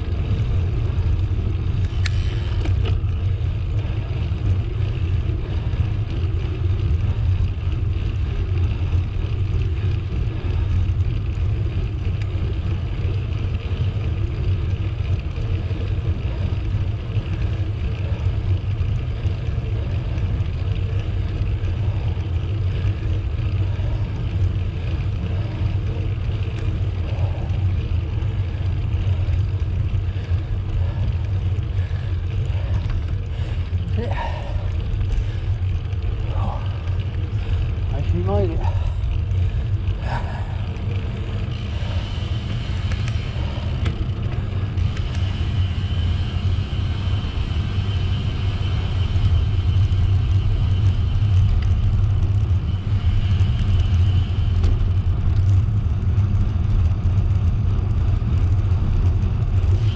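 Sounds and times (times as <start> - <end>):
bicycle tyre noise: 0.0 - 59.9.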